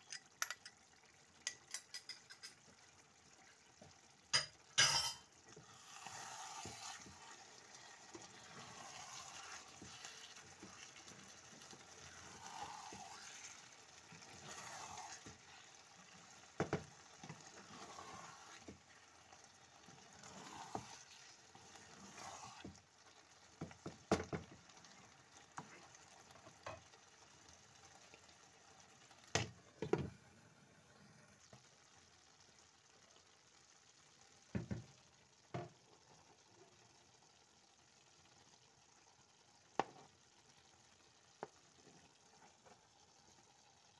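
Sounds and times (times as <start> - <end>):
wooden spoon stirring pot: 0.0 - 30.1
stew simmering and bubbling: 0.0 - 43.9.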